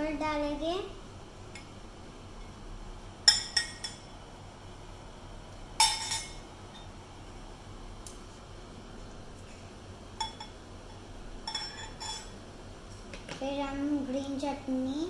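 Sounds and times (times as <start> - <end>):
steel spoon clinking against bowls: 3.3 - 4.1, 5.8 - 6.9, 10.2 - 10.6, 11.4 - 12.3.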